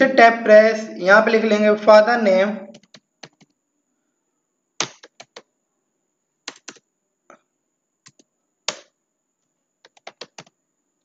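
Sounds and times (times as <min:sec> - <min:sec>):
keyboard keys clicking: 0:02.7 - 0:03.5, 0:04.8 - 0:05.5, 0:06.5 - 0:06.8, 0:08.1 - 0:08.9, 0:09.8 - 0:10.6.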